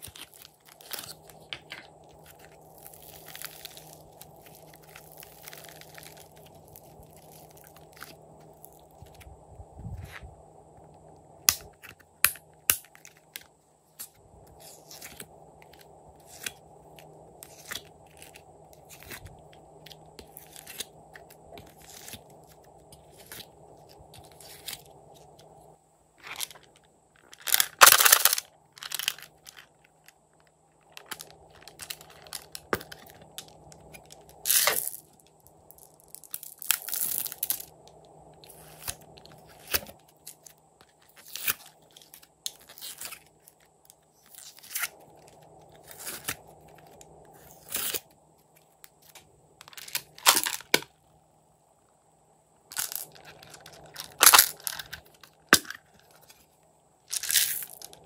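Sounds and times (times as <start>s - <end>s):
plastic clicks and crackles: 26.2s - 44.0s, 52.7s - 56.4s.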